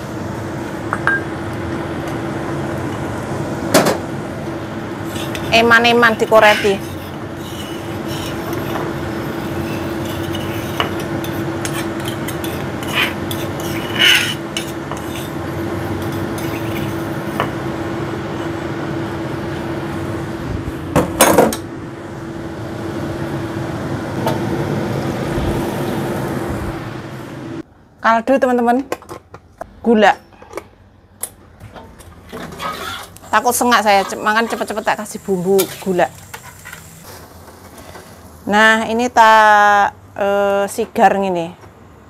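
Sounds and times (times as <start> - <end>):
steady hum and hiss: 0.0 - 30.1, 30.8 - 42.0
spoon scraping cookware: 5.1 - 17.5.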